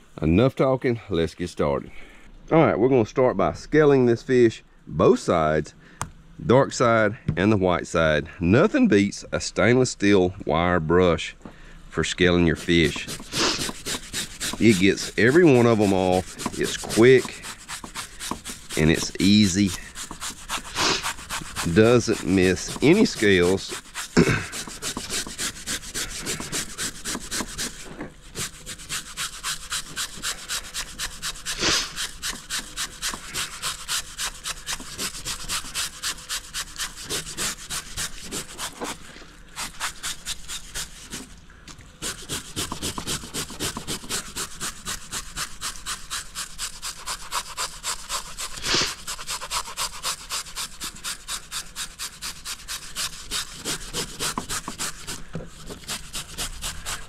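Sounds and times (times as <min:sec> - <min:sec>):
wire brush scrubbing fish scales: 0:12.1 - 0:41.4, 0:42.0 - 0:57.0.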